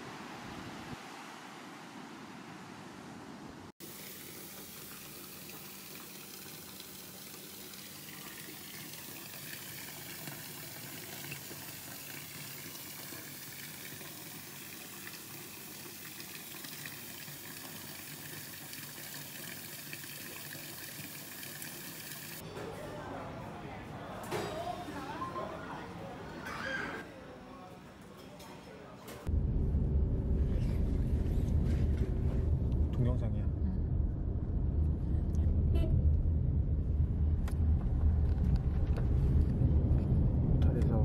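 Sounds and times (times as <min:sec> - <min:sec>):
tap water running into bathtub: 0:03.8 - 0:22.4.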